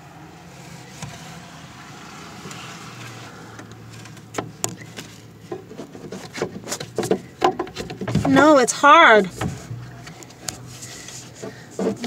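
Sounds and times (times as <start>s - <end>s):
light clicks and knocks: 3.6s - 8.6s
hand rummaging in wooden desk: 3.9s - 8.6s.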